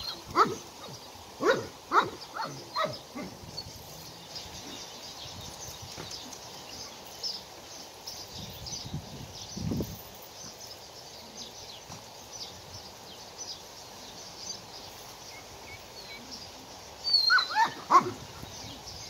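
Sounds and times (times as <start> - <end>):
small birds chirping: 0.0 - 19.0
steady background hiss: 0.0 - 19.0
dog yip with sliding pitch: 17.2 - 18.2.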